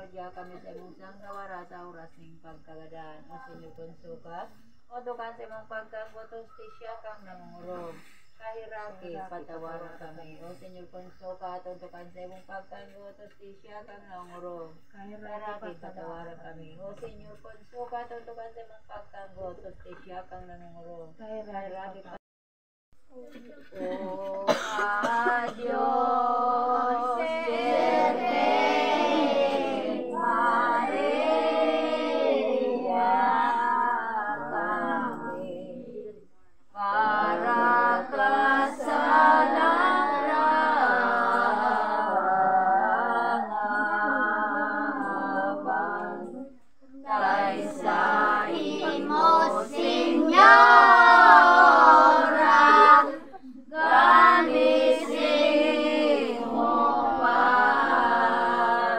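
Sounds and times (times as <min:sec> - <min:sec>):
women and children singing hymn: 0:23.7 - 0:58.9.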